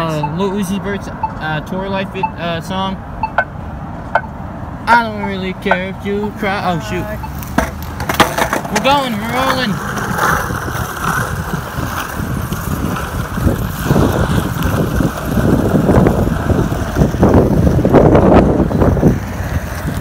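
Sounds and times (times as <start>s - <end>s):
wind buffeting microphone: 4.9s - 20.0s
bicycle rumbling on concrete: 5.1s - 20.0s.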